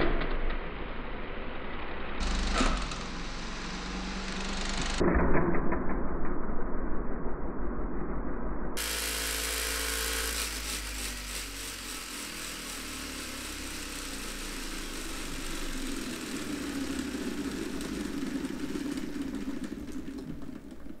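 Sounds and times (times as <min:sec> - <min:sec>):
electric motor whirring: 0:02.2 - 0:05.0, 0:08.8 - 0:20.2.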